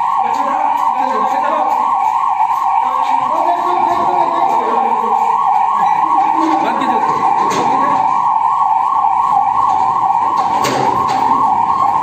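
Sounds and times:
ambulance siren warbling: 0:00.0 - 0:12.0.

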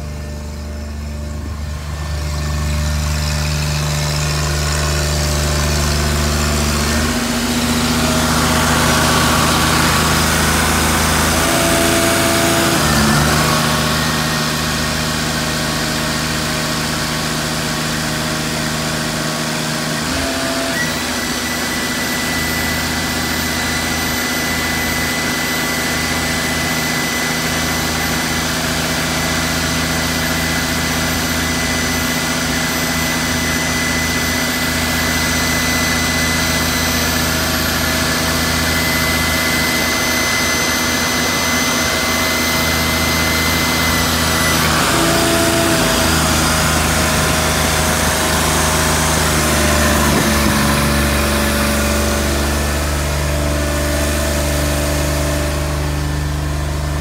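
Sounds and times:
hydraulic whine: 0:00.0 - 0:57.0
truck engine running: 0:00.0 - 0:57.0.

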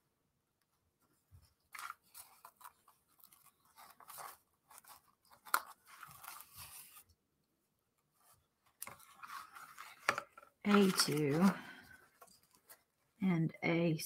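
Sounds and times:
wooden pieces crackling and rustling: 0:08.7 - 0:12.9.

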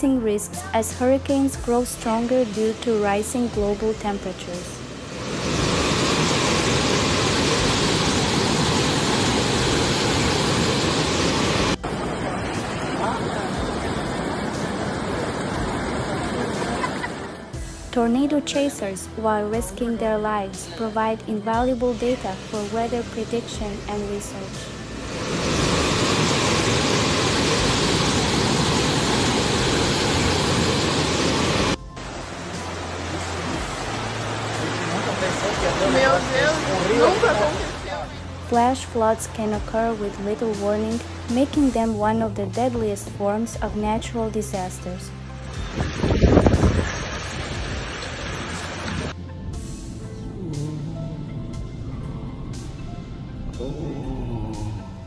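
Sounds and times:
fast-flowing floodwater rushing: 0:04.9 - 0:17.2, 0:24.8 - 0:38.2, 0:45.4 - 0:49.2
heavy surf pounding: 0:05.0 - 0:17.9, 0:24.2 - 0:38.1
storm wind roaring: 0:24.7 - 0:31.8, 0:45.6 - 0:49.2.

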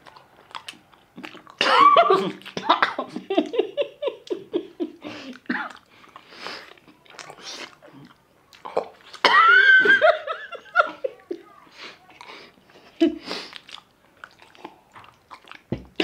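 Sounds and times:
person laughing with food in mouth: 0:01.2 - 0:05.9, 0:08.7 - 0:11.5, 0:12.2 - 0:13.6.

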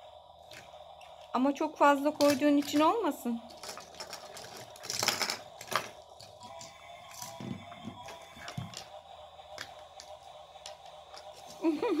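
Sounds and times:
toy cars clicking on a table: 0:02.1 - 0:08.9.

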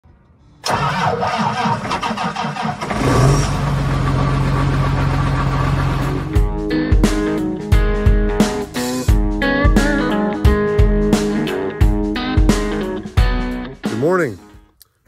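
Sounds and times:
tractor starter cranking: 0:00.6 - 0:06.2
diesel engine idling: 0:00.7 - 0:06.4.

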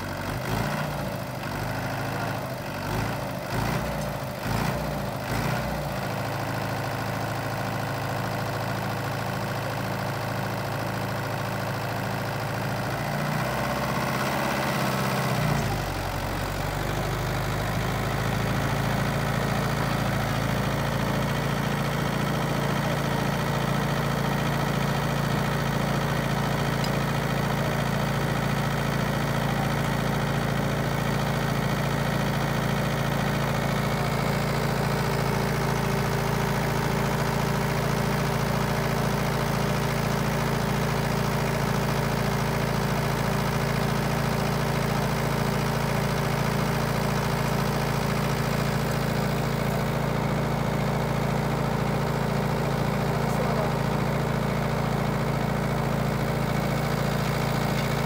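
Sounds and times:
diesel tractor engine running: 0:00.0 - 0:58.0.

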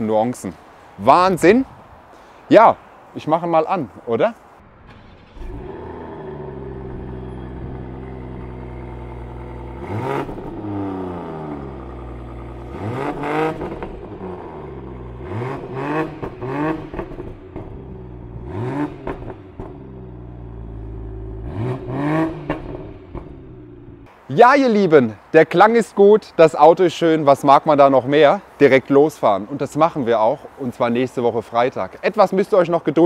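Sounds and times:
car engine idling: 0:04.6 - 0:24.1
engine revving: 0:04.6 - 0:24.1.

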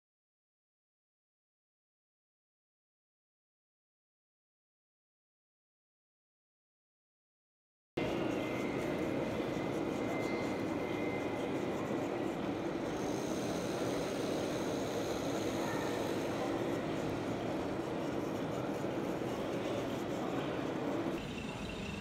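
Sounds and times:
background din of a large hall: 0:08.0 - 0:22.0
faint high whine: 0:08.0 - 0:22.0.

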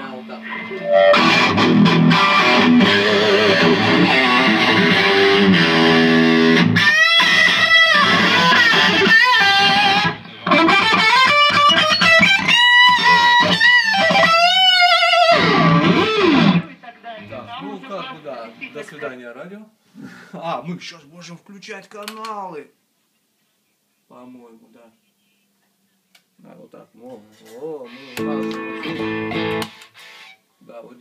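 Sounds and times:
overdriven electric guitar: 0:00.0 - 0:16.8, 0:27.9 - 0:30.4.

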